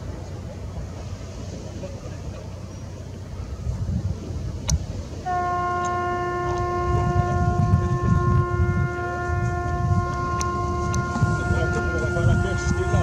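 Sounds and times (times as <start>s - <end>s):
ship's horn long blast: 5.2s - 13.0s
low rumble: 5.9s - 13.0s.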